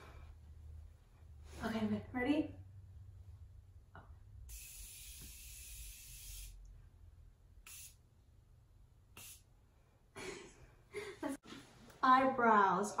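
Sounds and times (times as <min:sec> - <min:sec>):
aerosol spray hiss: 0:04.5 - 0:06.6, 0:07.6 - 0:08.0, 0:09.1 - 0:09.5.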